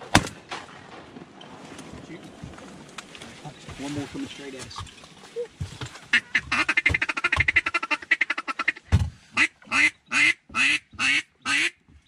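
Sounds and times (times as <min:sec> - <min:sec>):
duck call quacks: 0:06.1 - 0:11.8
dull thump: 0:08.9 - 0:09.3.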